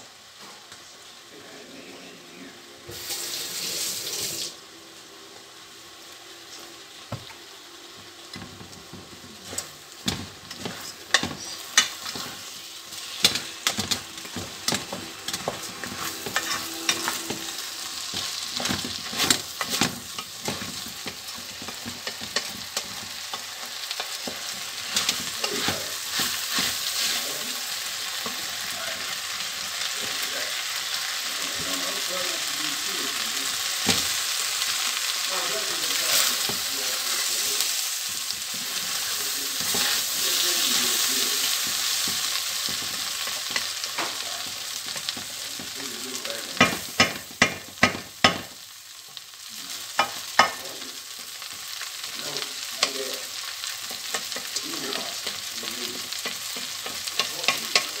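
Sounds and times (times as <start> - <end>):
rice sizzling in oil: 0.0 - 58.0
wooden spoon scraping a pan: 8.6 - 29.2, 35.8 - 48.0.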